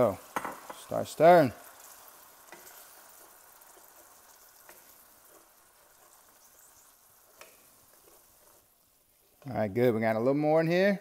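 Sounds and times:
faint sizzling in a pan: 0.0 - 11.0
spoon tapping a pan: 0.2 - 0.9, 1.8 - 6.4, 7.3 - 8.2.

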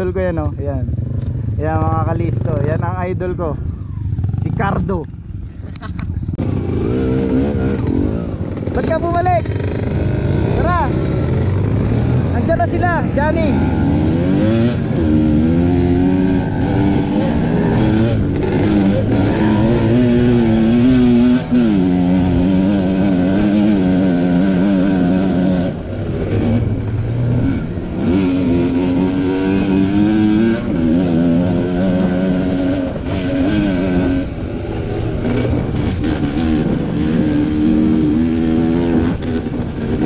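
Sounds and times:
two-stroke motorcycle engine revving: 6.4 - 40.0.

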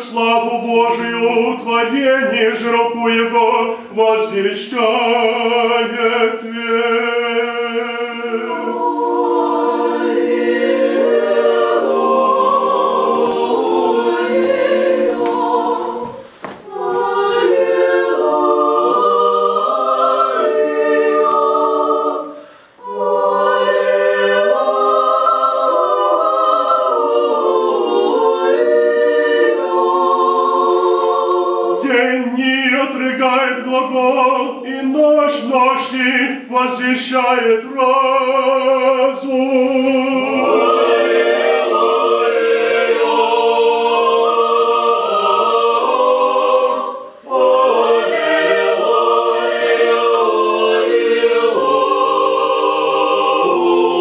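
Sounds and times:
church choir chanting a cappella: 0.0 - 54.0.

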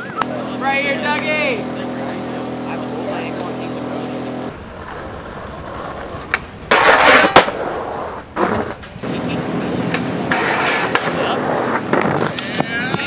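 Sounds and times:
skateboard scraping concrete: 0.1 - 13.0
skateboard wheels rolling: 3.1 - 13.0
skateboard clack: 4.5 - 13.0
skateboard click: 4.8 - 9.0.

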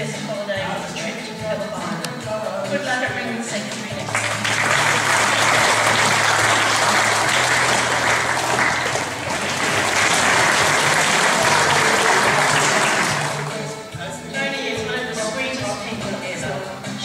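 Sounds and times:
audience applauding: 4.0 - 13.7.

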